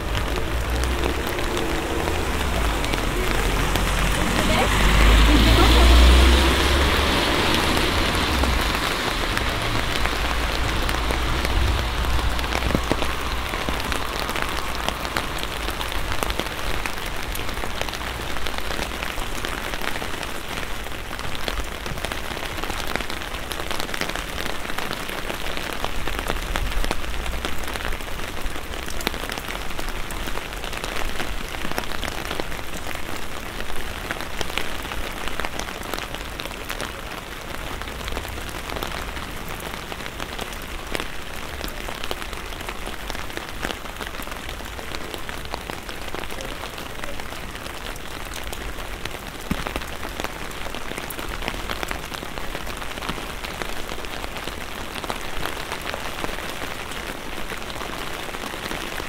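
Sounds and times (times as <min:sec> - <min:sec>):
low rumble: 0:00.0 - 0:18.6
rain on an umbrella: 0:00.0 - 0:59.0.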